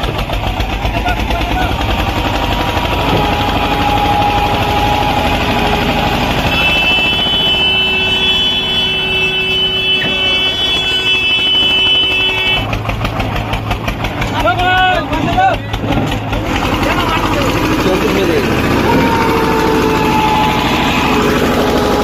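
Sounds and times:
tractor engine labouring under load: 0:00.0 - 0:22.0
steady horn: 0:02.5 - 0:12.8, 0:18.8 - 0:22.0.

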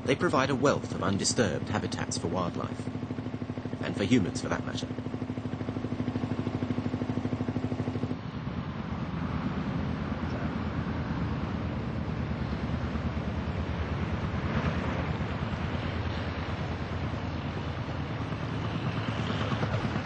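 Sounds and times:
boat engine chugging: 0:00.0 - 0:08.2.

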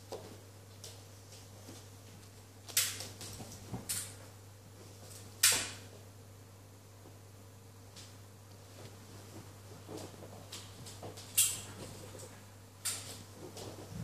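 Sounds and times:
puppy scuffing and rustling: 0:08.6 - 0:14.0.

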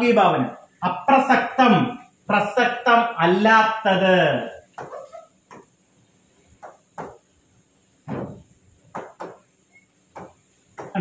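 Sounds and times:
pen tapping on glass screen: 0:06.6 - 0:07.2, 0:08.9 - 0:09.5, 0:10.1 - 0:11.0.

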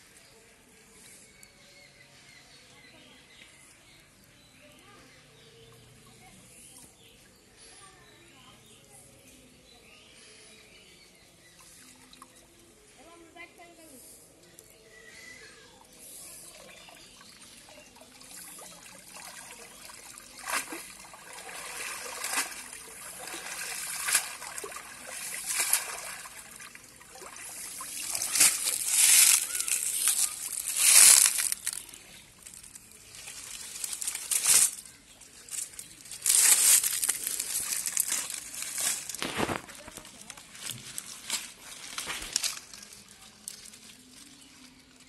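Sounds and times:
water splashing and dripping: 0:16.6 - 0:31.8.

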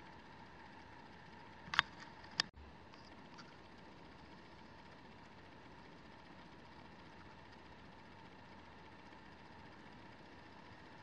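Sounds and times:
thin steady tone: 0:00.0 - 0:11.0.

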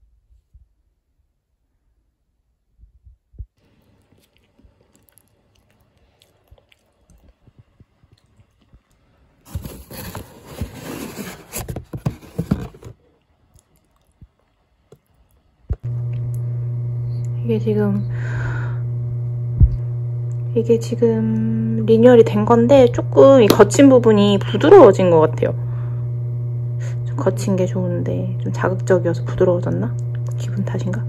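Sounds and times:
steady low hum: 0:02.6 - 0:31.0
cardboard boxes rubbing together: 0:09.5 - 0:13.0.

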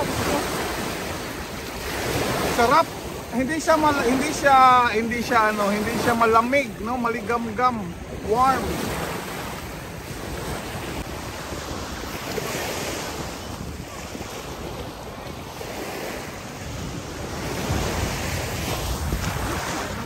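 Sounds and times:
sea waves washing ashore: 0:00.0 - 0:20.0
wind buffeting microphone: 0:00.0 - 0:20.0.

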